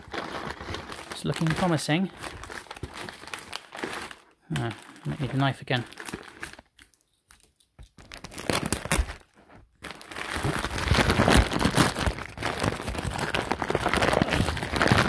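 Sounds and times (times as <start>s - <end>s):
packaging crinkling and rustling: 0.0s - 15.0s.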